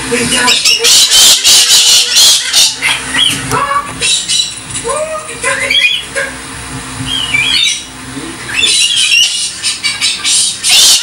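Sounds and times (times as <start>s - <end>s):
cockatoo calling and screeching: 0.3s - 6.4s, 7.0s - 11.0s.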